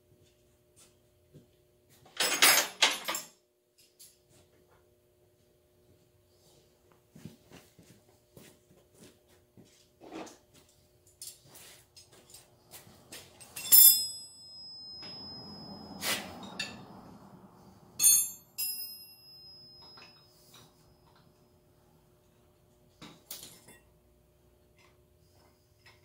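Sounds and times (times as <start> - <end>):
metal tools clinking: 2.2 - 4.2, 11.1 - 17.4, 18.0 - 21.4
sharp metallic clinks: 13.2 - 21.2.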